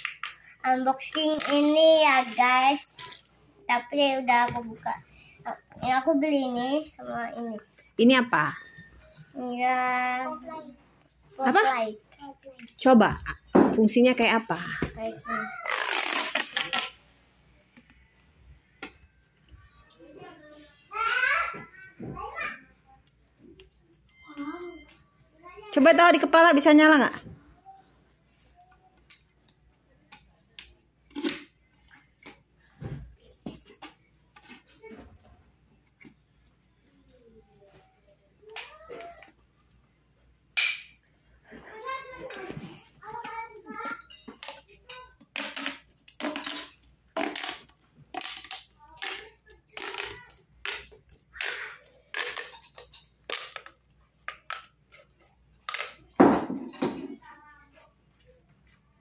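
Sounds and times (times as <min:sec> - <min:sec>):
plastic toy clicks and knocks: 0:44.4 - 0:54.8
plastic pop tube rasping: 0:45.3 - 0:54.7.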